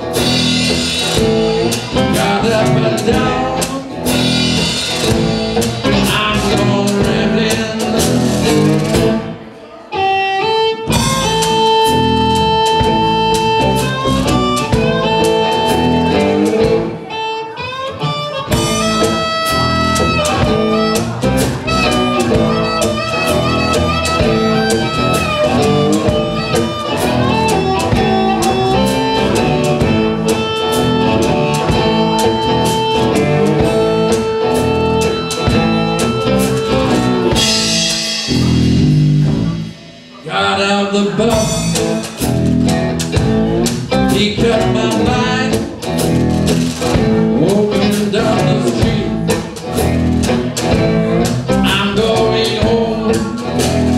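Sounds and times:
drum kit: 0.0s - 9.4s, 10.8s - 17.1s, 17.9s - 53.9s
cigar-box guitars: 0.0s - 53.9s
amplified harmonica: 9.9s - 39.6s.

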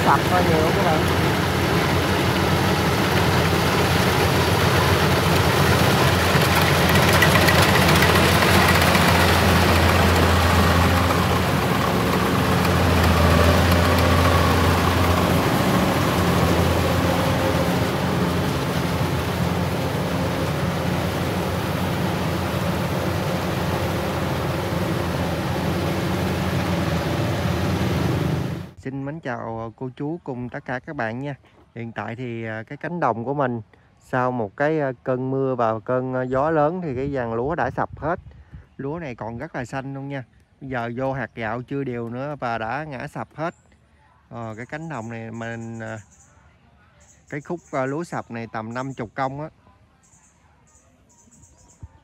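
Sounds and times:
combine harvester engine humming: 0.0s - 28.8s.

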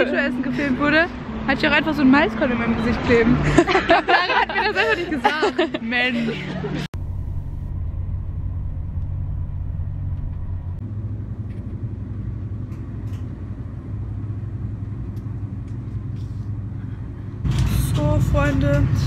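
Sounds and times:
train rumble inside carriage: 7.0s - 19.0s.

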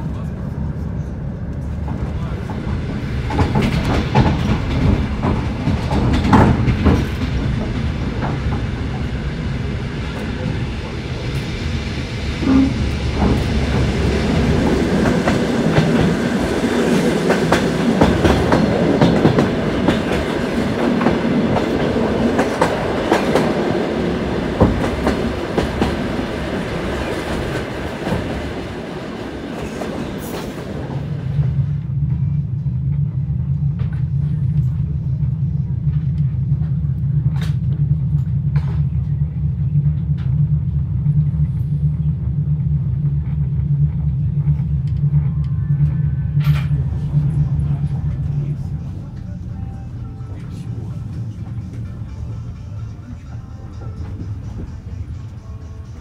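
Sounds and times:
train wheels clattering over joints: 1.8s - 9.2s.

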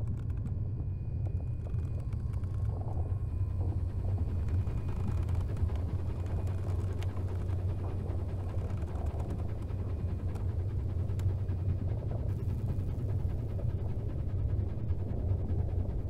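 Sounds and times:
faint mechanical clicks and creaks: 0.0s - 11.4s.

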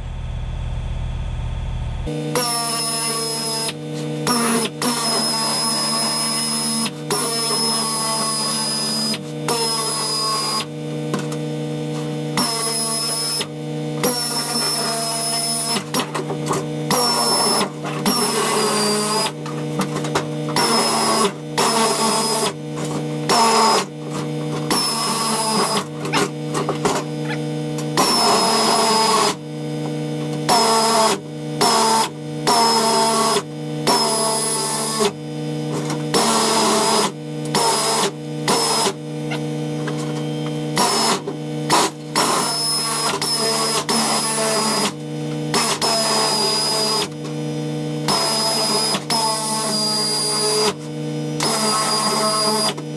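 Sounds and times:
steady low hum: 0.0s - 2.2s.

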